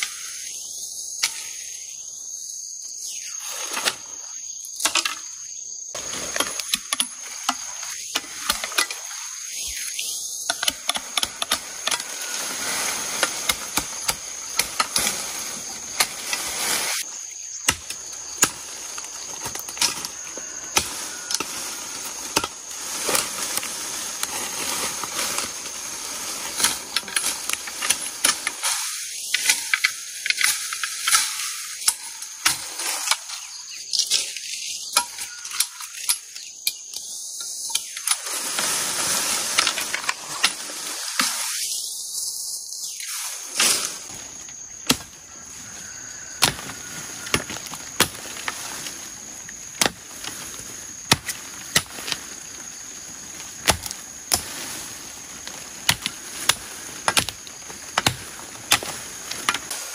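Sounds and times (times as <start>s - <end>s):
rustling of leaves and brush: 2.9s - 59.9s
machete chopping bamboo: 44.8s - 45.2s, 46.4s - 48.6s, 49.7s - 52.4s, 53.3s - 54.8s, 55.4s - 59.8s.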